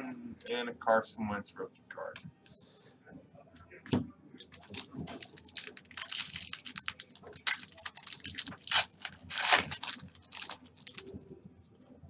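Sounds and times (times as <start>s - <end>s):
foil wrapper crinkling: 4.4s - 11.1s.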